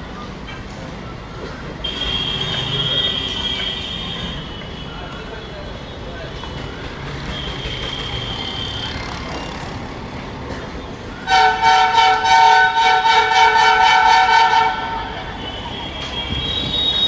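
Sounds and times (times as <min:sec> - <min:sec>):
train coaches rolling past: 0:00.0 - 0:17.0
locomotive air horn: 0:01.8 - 0:04.8, 0:11.2 - 0:17.0.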